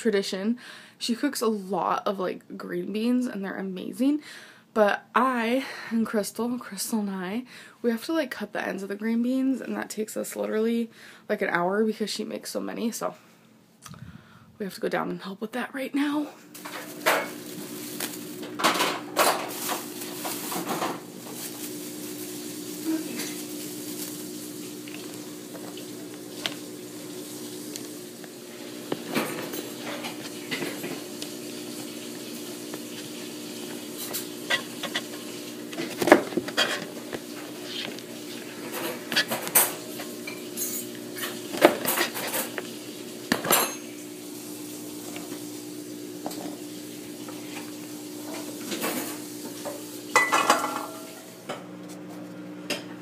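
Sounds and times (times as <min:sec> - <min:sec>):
plastic bag rustling: 0:16.6 - 0:40.2.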